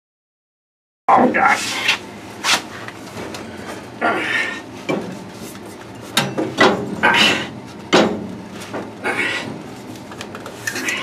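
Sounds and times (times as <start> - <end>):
metal parts clanking and scraping: 10.6 - 11.0.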